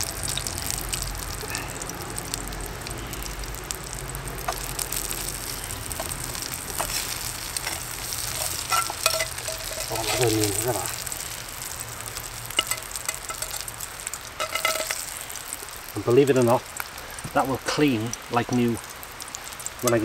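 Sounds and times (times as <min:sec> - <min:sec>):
onions sizzling in a frying pan: 0:00.0 - 0:20.0
utensil scraping a pan: 0:06.0 - 0:10.8, 0:14.4 - 0:15.2.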